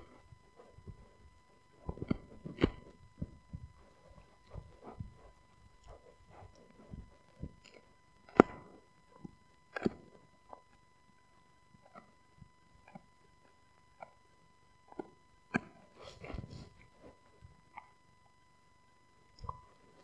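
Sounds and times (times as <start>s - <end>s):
dog gnawing a chew bone: 0.0s - 10.8s, 12.8s - 14.2s.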